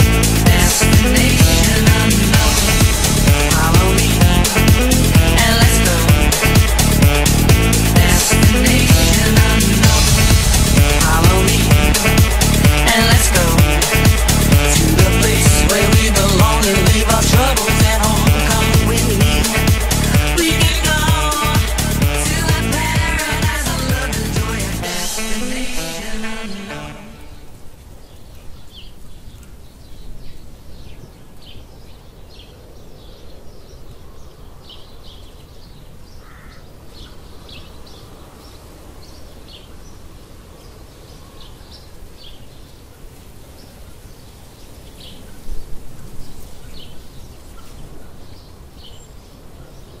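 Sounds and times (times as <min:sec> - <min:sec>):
low bump: 0:00.0 - 0:20.4
steady low rumble: 0:00.0 - 0:27.4.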